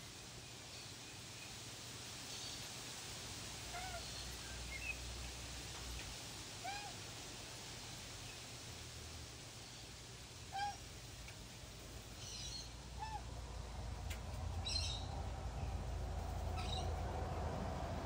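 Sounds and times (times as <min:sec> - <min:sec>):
outdoor background noise: 0:00.0 - 0:18.0
birds calling faintly: 0:09.4 - 0:17.5.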